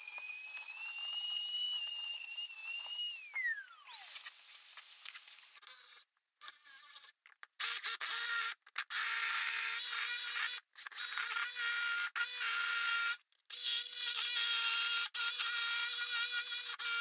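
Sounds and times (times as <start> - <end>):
jigsaw cutting wood: 0.0 - 7.0, 7.6 - 17.0.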